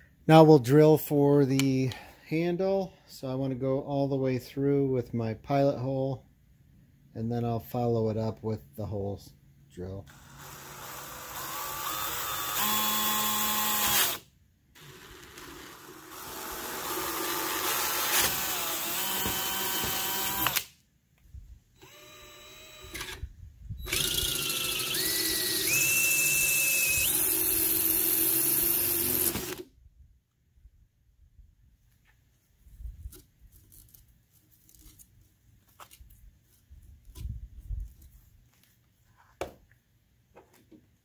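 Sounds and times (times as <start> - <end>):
cordless drill boring plastic pipe: 10.1 - 14.2, 14.8 - 20.7, 21.8 - 23.2, 23.8 - 29.7.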